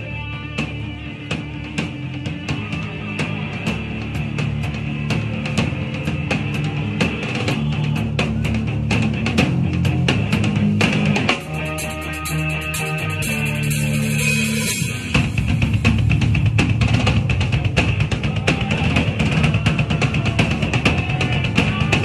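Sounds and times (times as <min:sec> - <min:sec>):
rock band playing: 0:00.0 - 0:22.0
drum kit hits: 0:05.2 - 0:22.0.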